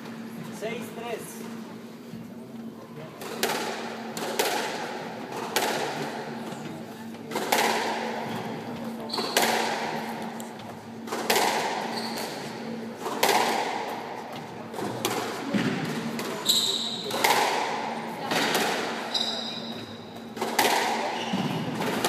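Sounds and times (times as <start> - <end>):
shoe squeaks on wooden floor: 9.1 - 9.4, 11.9 - 12.4, 16.4 - 17.1, 19.0 - 19.9
squash ball smacks: 20.4 - 22.0.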